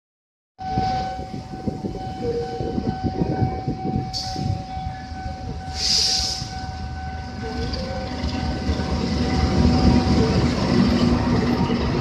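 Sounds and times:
freight train rumble: 0:00.6 - 0:12.0
steady high tone: 0:00.6 - 0:12.0
brief hiss: 0:05.8 - 0:06.5.

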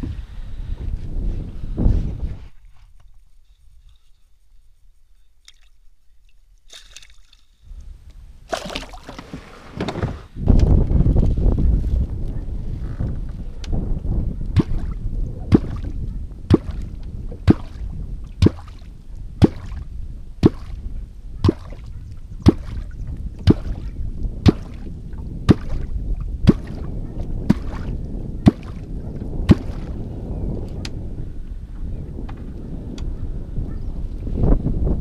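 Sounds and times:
sharp popping in water: 0:06.7 - 0:07.5, 0:08.5 - 0:09.2, 0:14.5 - 0:18.8, 0:19.4 - 0:19.8, 0:20.4 - 0:20.8, 0:21.4 - 0:24.9, 0:25.5 - 0:26.9, 0:27.5 - 0:28.9, 0:29.5 - 0:30.0.

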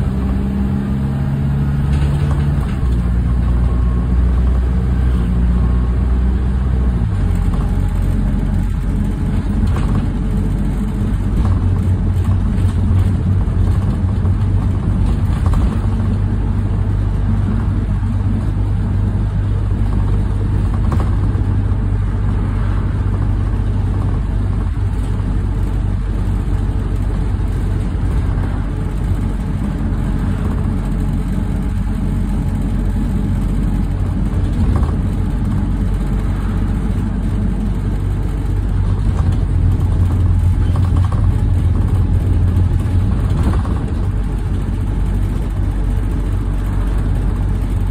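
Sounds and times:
bus diesel engine humming: 0:00.0 - 0:47.9.

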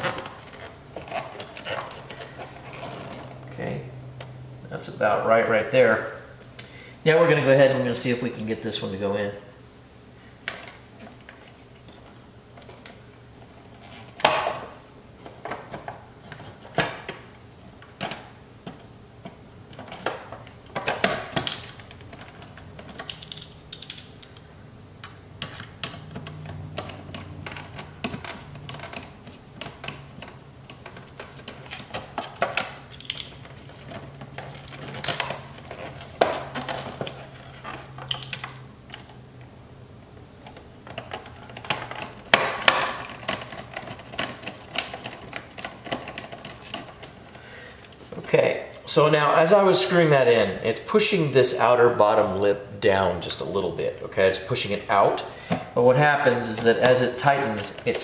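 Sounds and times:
plastic parts clattering: 0:00.0 - 0:03.3, 0:19.7 - 0:24.4, 0:25.4 - 0:39.2, 0:40.4 - 0:47.2.

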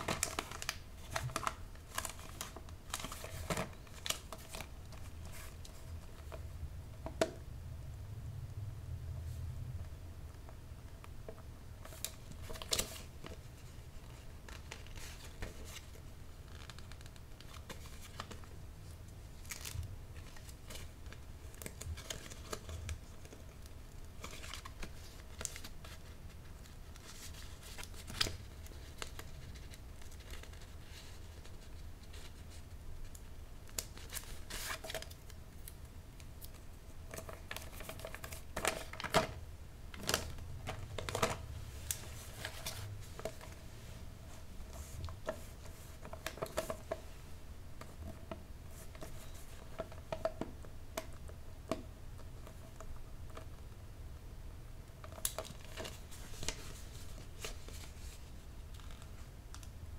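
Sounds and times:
wrapping paper crinkling: 0:00.0 - 0:06.4
low steady hum: 0:00.0 - 0:59.9.

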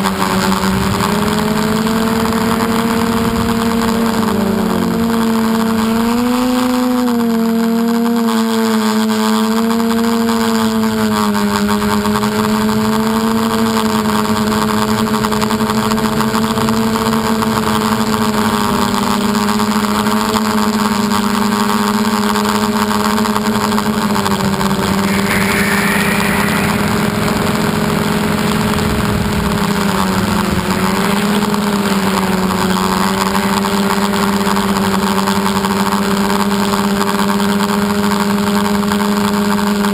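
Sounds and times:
model aircraft motor humming: 0:00.0 - 0:25.0.

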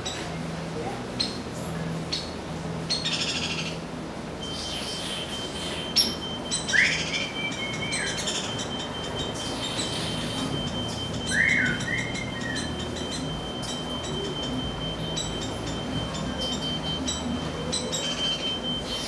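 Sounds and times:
woodpecker begging calls: 0:02.9 - 0:03.8, 0:04.4 - 0:19.0
steady electronic beep: 0:04.4 - 0:19.0.

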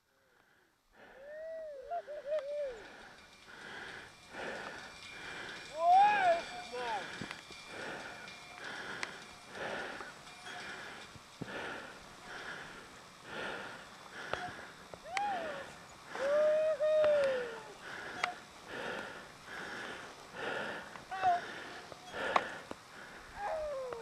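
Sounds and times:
heavy breathing: 0:00.0 - 0:24.0
hooting cry: 0:01.1 - 0:03.2, 0:05.7 - 0:07.1, 0:14.2 - 0:18.5, 0:23.3 - 0:24.0.

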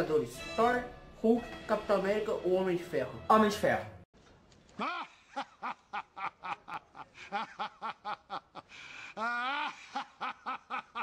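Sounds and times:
man laughing hard: 0:04.8 - 0:11.0.

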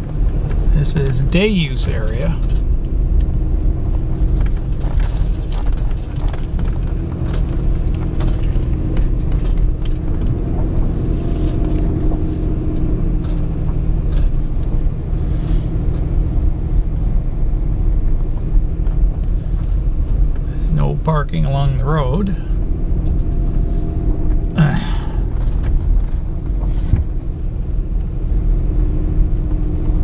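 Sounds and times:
low rumble of engine and tyres: 0:00.0 - 0:30.0
clicks and knocks over bumps: 0:03.9 - 0:14.8.

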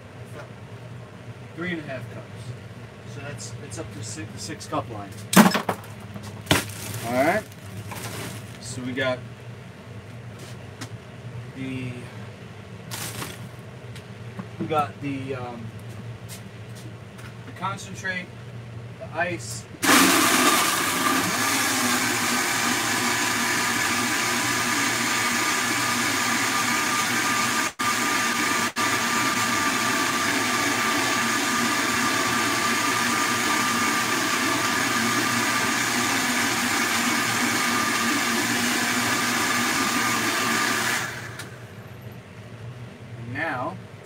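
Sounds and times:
blender running at high speed: 0:19.8 - 0:41.6.

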